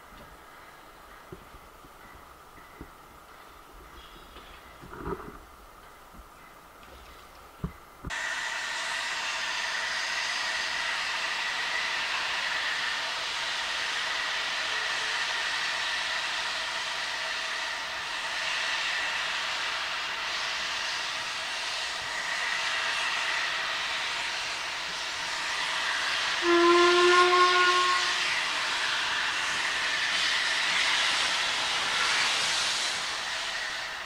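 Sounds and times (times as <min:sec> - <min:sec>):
steam hissing: 0:08.1 - 0:34.0
steam whistle: 0:25.6 - 0:29.4.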